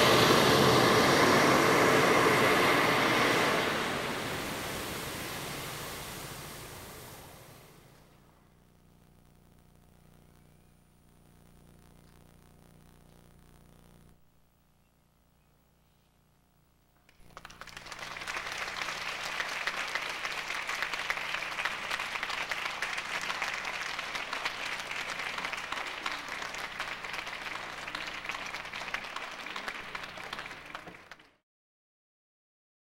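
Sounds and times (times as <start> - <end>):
audience applauding: 17.1 - 31.4.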